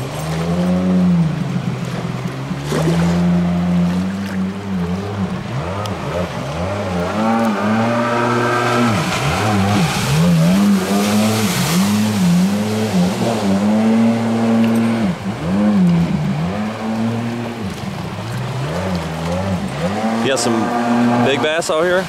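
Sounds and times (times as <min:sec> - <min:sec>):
watercraft engine revving: 0:00.0 - 0:22.0
water spray rushing: 0:05.1 - 0:22.0.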